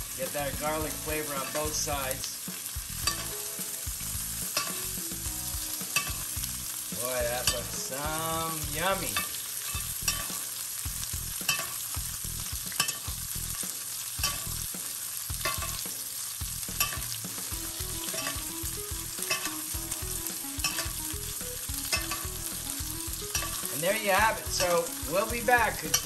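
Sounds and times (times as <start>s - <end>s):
butter sizzling in a pot: 0.0s - 26.0s
metal spoon clicking on iron: 14.2s - 14.5s.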